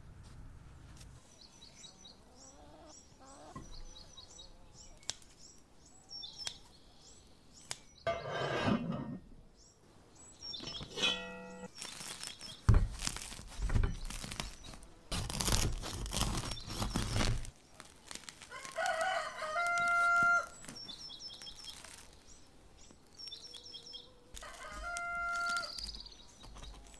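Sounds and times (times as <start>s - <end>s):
small birds chirping: 1.1s - 8.4s, 9.5s - 26.9s
bread crust crackling: 11.7s - 26.9s
rooster crowing: 18.5s - 20.6s, 24.4s - 25.8s.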